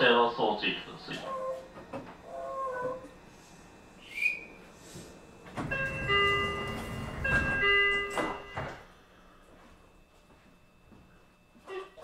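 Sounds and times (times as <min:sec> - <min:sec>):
steady whining tones: 0:00.0 - 0:12.0
train wheels rumbling on rail: 0:05.4 - 0:08.8.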